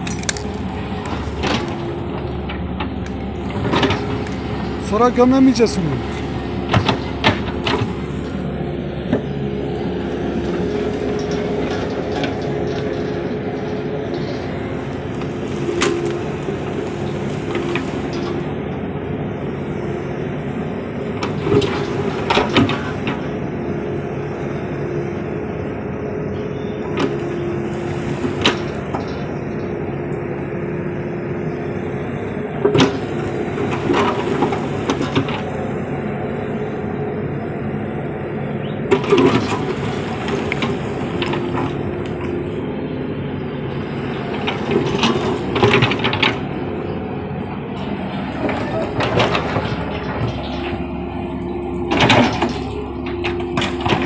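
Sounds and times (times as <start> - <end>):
diesel engine running: 0.0 - 54.0
metal bucket scraping stones: 38.9 - 42.3.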